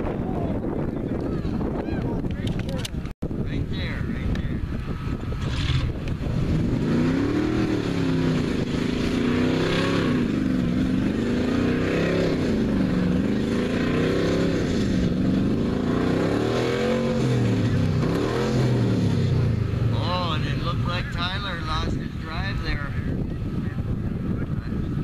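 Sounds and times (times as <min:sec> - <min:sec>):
truck engine revving: 0:04.8 - 0:22.6.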